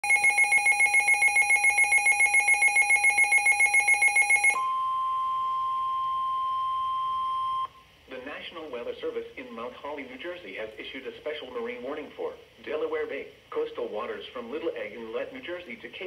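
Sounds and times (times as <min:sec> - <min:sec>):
rapid pulsing electronic alarm: 0:00.0 - 0:04.9
steady warning tone: 0:00.0 - 0:07.8.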